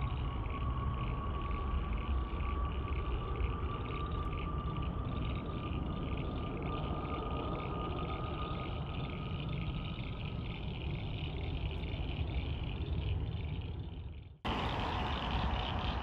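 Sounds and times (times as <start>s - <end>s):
thin steady whine: 0.0s - 16.0s
distant jet engines rumbling: 14.5s - 16.0s.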